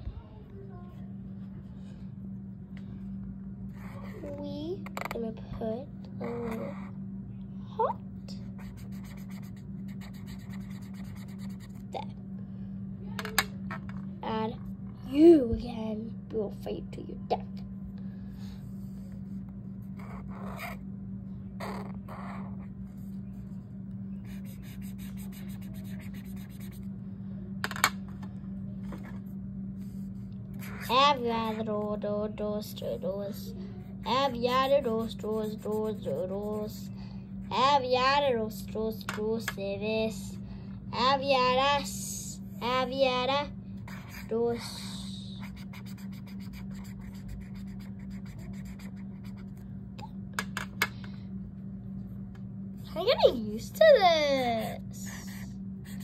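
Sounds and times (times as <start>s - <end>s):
steady low hum: 0.0s - 56.0s
marker scratching on paper: 3.7s - 4.3s, 6.2s - 6.9s, 8.5s - 11.8s, 18.7s - 20.8s, 24.2s - 26.9s, 34.0s - 36.9s, 43.9s - 49.6s, 54.6s - 56.0s.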